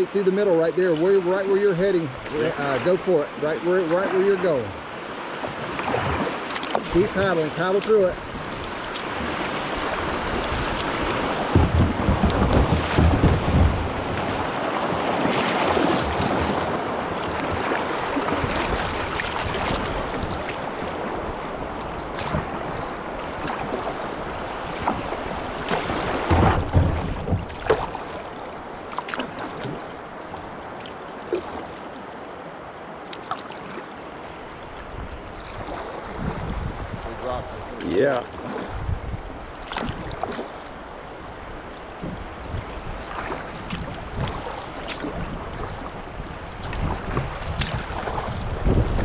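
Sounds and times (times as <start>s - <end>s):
paddle splashes: 0.0s - 49.0s
river water rushing: 0.0s - 49.0s
low thumps: 11.4s - 14.4s.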